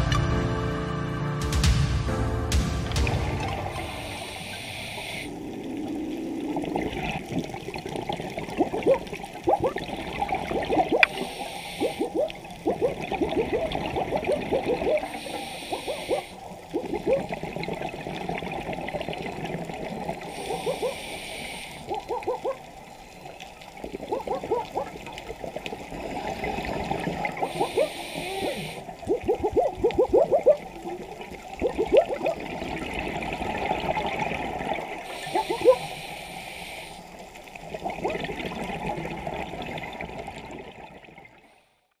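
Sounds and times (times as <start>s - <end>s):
regulator hissing on inhale: 3.7s - 5.4s, 11.0s - 12.2s, 14.9s - 16.7s, 20.2s - 22.0s, 25.9s - 29.0s, 35.0s - 37.6s
gurgling exhaust bubbles: 5.3s - 21.0s, 23.8s - 35.9s, 37.6s - 41.4s.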